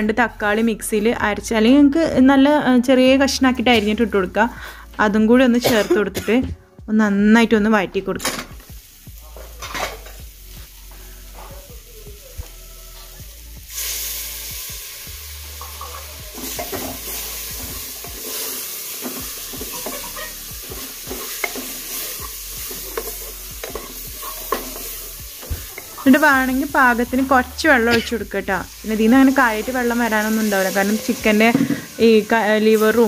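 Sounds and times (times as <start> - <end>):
food sizzling in pot: 8.2 - 33.0
spatula scraping pot: 15.6 - 26.2.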